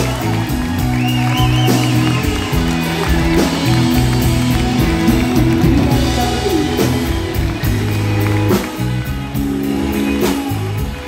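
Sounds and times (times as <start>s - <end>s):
acoustic and electric guitars: 0.0s - 11.0s
drum kit beat: 0.0s - 11.0s.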